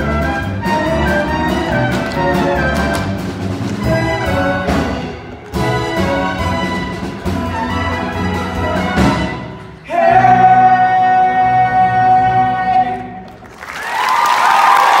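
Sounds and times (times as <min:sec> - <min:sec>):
cast singing with orchestra: 0:05.7 - 0:13.2
audience applause and cheers: 0:13.2 - 0:15.0.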